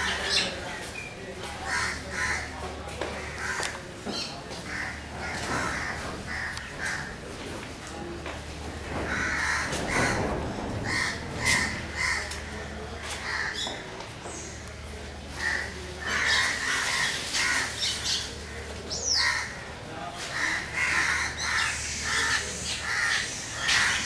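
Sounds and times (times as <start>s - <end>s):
crows cawing: 1.6s - 3.8s, 4.6s - 7.2s, 9.0s - 13.7s, 15.4s - 19.7s, 20.3s - 24.0s.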